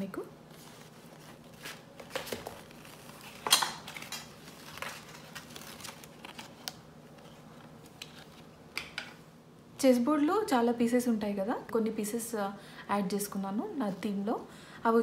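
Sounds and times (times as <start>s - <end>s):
cardstock rustling: 0.5s - 8.5s.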